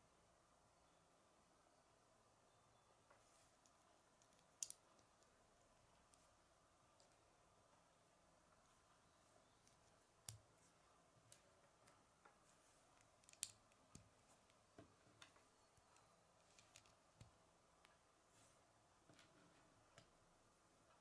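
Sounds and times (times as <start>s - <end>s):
plastic pieces clicking: 4.2s - 5.3s, 13.0s - 14.6s.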